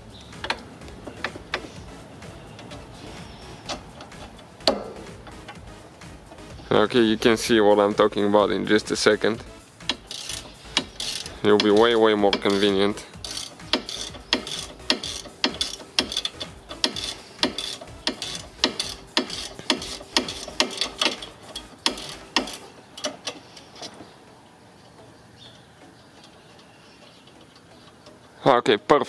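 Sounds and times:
ratchet wrench clicking: 0.4 - 1.9, 2.5 - 6.7, 9.5 - 24.0.

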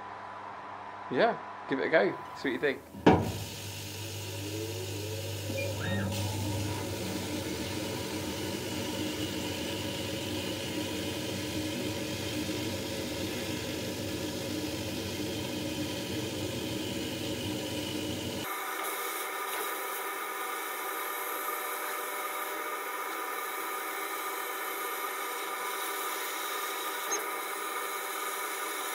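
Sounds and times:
laser cutter machine hum: 3.2 - 28.9
rising machine whines: 3.9 - 10.8.

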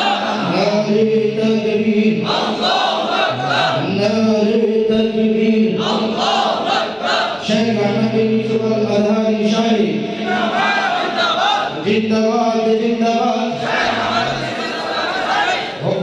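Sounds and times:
person chanting melodic recitation: 0.0 - 2.6, 3.2 - 10.4, 11.2 - 14.4.

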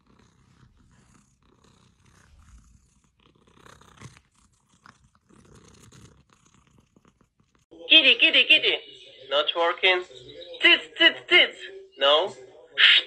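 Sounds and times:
cat purring: 0.0 - 7.7.

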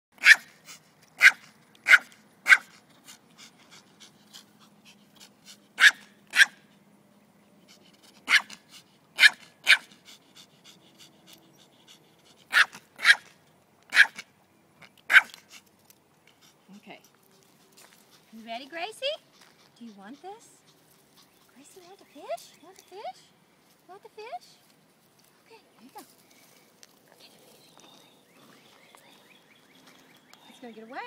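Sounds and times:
small dog yapping: 0.2 - 0.6, 1.2 - 2.8, 5.8 - 6.6, 8.2 - 9.9, 12.5 - 14.3, 15.1 - 15.6.

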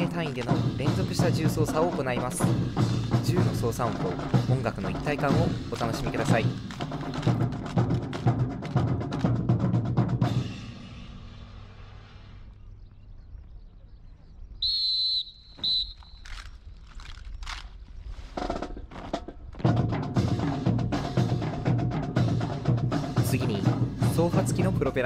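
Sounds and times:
drum march music: 0.0 - 11.0, 18.3 - 25.0
whistle: 14.6 - 16.5.

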